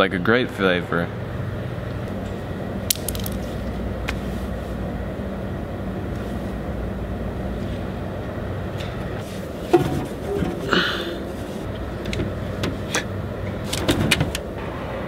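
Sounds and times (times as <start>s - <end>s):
low electrical hum: 0.0s - 15.0s
room noise: 6.0s - 15.0s.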